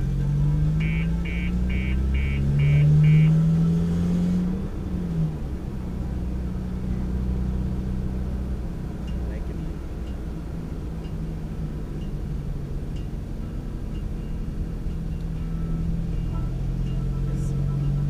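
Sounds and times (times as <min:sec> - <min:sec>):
car engine from inside cabin: 0:00.0 - 0:18.0
short high electronic beeps: 0:00.8 - 0:03.5.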